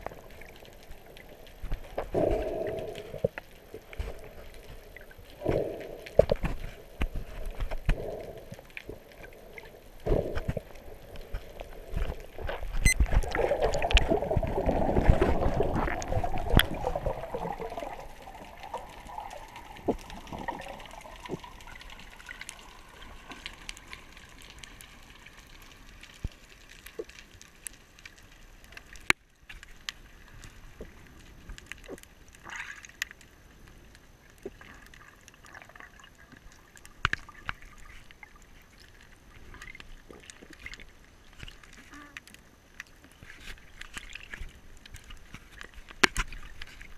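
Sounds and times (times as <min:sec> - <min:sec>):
water rushing and bubbling: 0:00.0 - 0:29.1
underwater clicks and crackles: 0:00.0 - 0:46.9
underwater hiss: 0:02.0 - 0:03.3.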